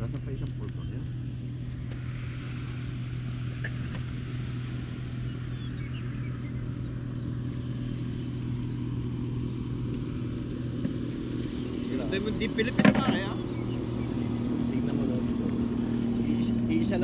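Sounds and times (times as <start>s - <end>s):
low mechanical hum: 0.0s - 17.0s
faint bird chirps: 5.2s - 10.2s.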